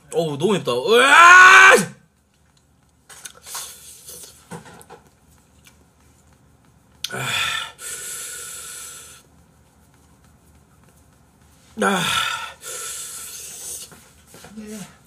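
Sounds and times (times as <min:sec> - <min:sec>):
man breathing hard: 0:07.0 - 0:09.3, 0:11.8 - 0:13.9.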